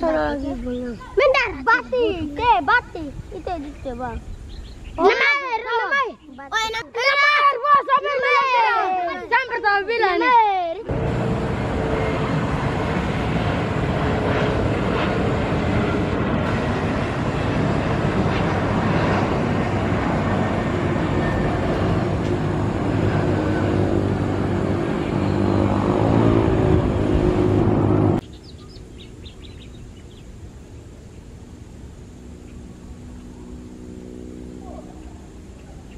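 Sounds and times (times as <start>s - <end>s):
faint distant jet: 0.0s - 35.9s
jet engines rushing: 7.8s - 35.9s.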